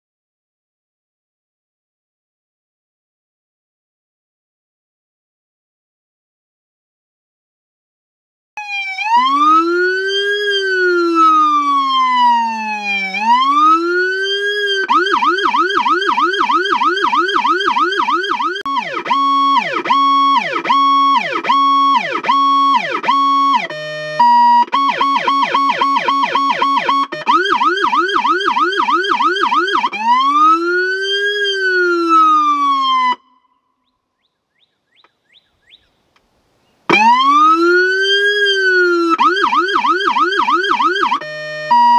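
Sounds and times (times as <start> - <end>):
electronic siren wailing and yelping: 8.6 - 33.6, 36.9 - 41.9.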